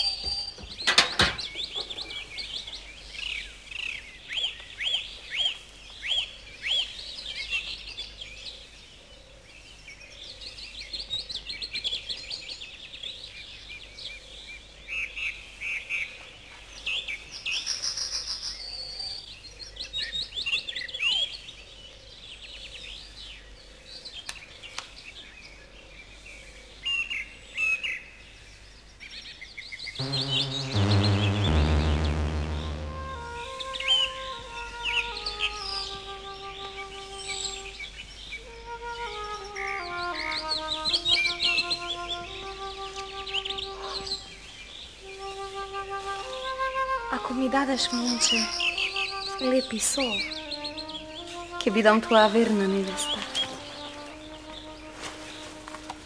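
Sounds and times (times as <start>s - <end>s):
songbirds chirping: 0.0s - 56.0s
music: 30.0s - 37.8s, 38.4s - 44.3s, 45.0s - 56.0s.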